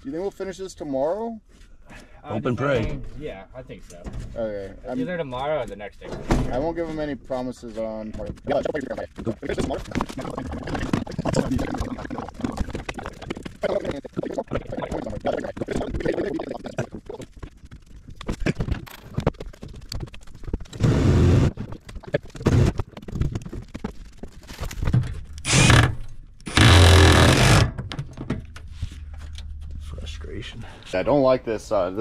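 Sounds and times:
mastic squishing and scraping: 6.7 - 30.1.

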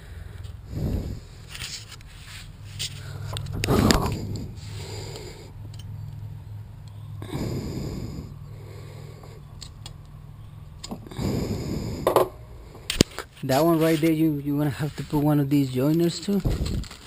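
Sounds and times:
person breathing: 0.0 - 1.6, 2.8 - 5.7, 7.2 - 9.6, 11.0 - 13.3
steady low hum: 0.0 - 17.0.

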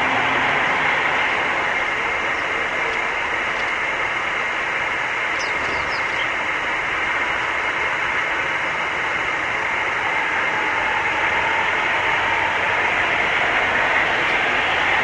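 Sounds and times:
steady rushing noise: 0.0 - 15.0
small bird chirping: 5.3 - 6.4.

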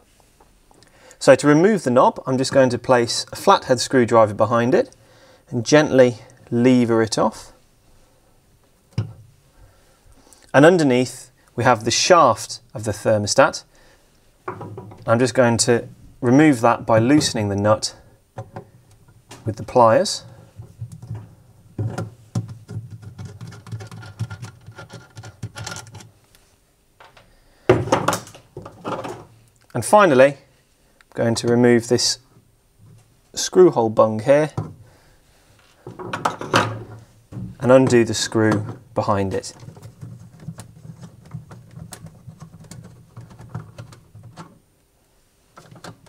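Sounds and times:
nut clicking and scratching on shaft: 22.4 - 26.1, 39.4 - 44.6.

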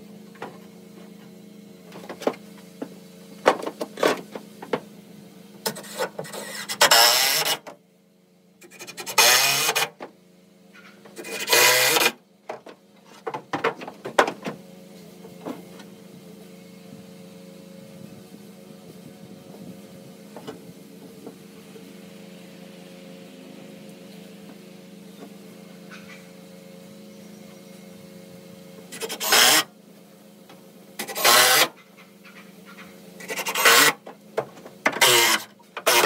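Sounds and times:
cordless drill driving screws: 5.7 - 7.6, 8.7 - 9.9, 11.2 - 12.2, 28.9 - 29.7, 31.0 - 31.7, 33.2 - 34.0, 35.0 - 36.0.

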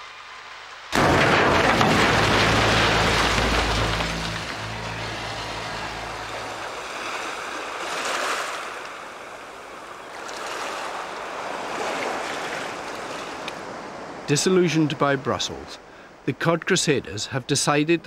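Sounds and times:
waves washing over sandy shore: 0.9 - 15.1.

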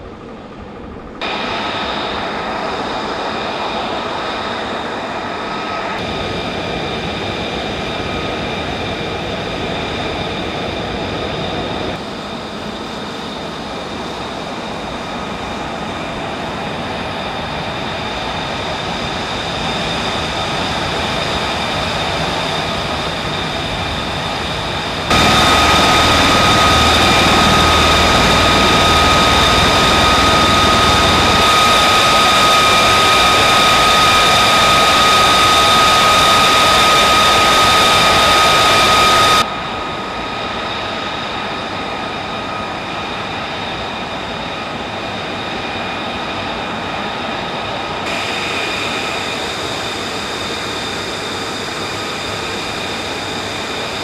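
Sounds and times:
jet turbine whine and rush: 0.0 - 54.0.

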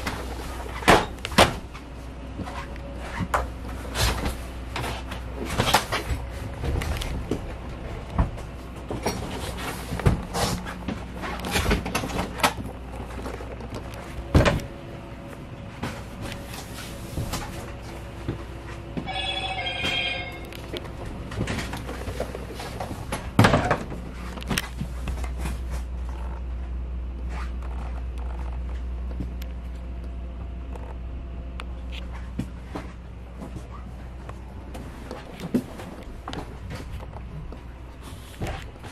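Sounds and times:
low hum: 0.0 - 38.9
trilling electronic ring: 19.0 - 20.7.

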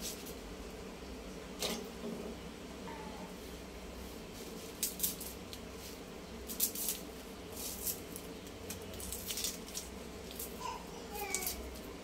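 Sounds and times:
onion skin scraping against blade: 6.4 - 10.6.

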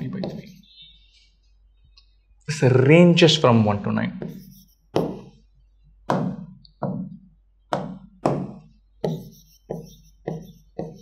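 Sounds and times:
sharp knocks: 6.1 - 11.0.

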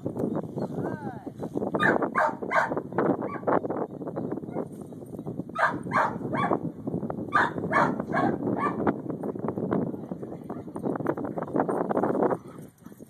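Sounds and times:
dog barking: 1.8 - 3.5, 5.6 - 6.6, 7.3 - 8.8.

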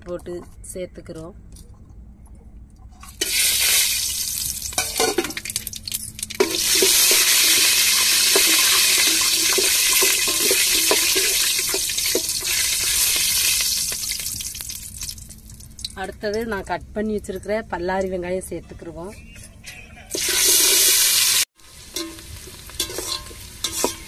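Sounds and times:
spices sizzling in hot oil: 3.2 - 16.7, 20.1 - 24.0
metal ladle scraping a pot: 6.4 - 13.4, 19.4 - 21.0, 21.8 - 24.0.

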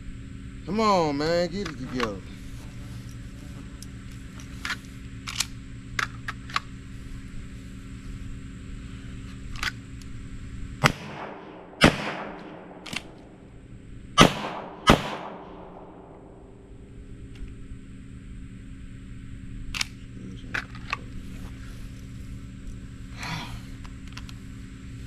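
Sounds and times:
pistol shots: 10.8 - 13.5, 14.2 - 16.2.

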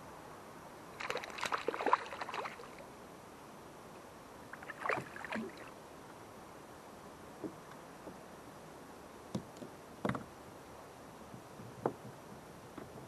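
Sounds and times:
fish splashing at water surface: 1.0 - 2.8.

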